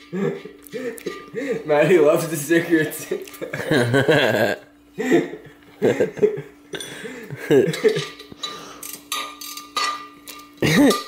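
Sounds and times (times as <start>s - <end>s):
metal clinks and scrapes: 7.7s - 11.0s.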